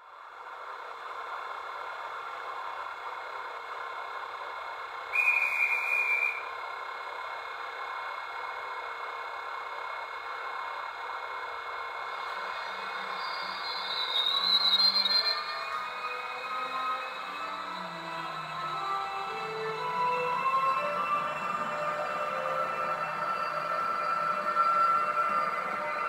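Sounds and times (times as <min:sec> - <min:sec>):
brief high whistle tone: 0:05.1 - 0:06.5, 0:13.1 - 0:15.8.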